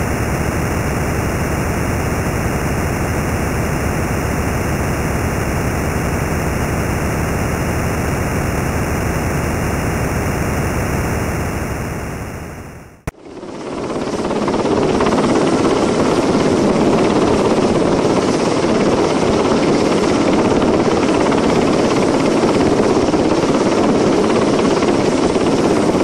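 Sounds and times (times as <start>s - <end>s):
steady hiss-like noise: 0.0s - 13.0s.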